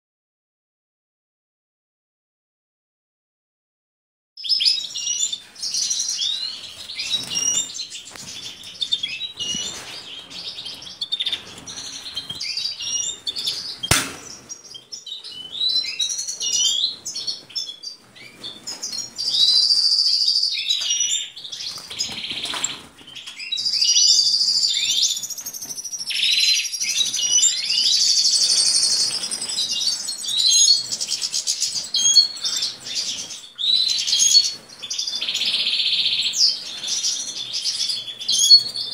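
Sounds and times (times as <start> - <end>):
sharp click: 13.9 - 14.5.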